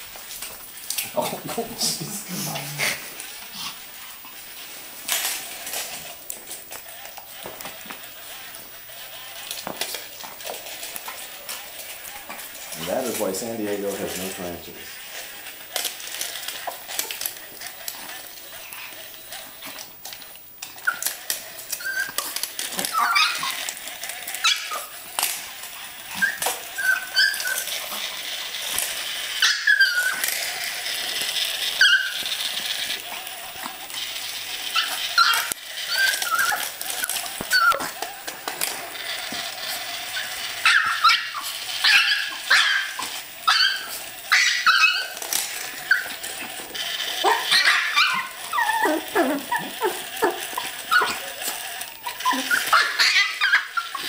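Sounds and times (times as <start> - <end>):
small dogs barking and yipping: 20.7 - 54.0.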